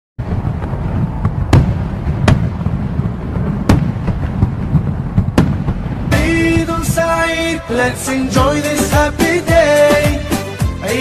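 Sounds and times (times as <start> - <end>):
firecracker bangs: 0.2 - 8.8
steady low rumble: 0.2 - 9.6
faint firecracker pops: 1.2 - 2.8, 3.7 - 5.9.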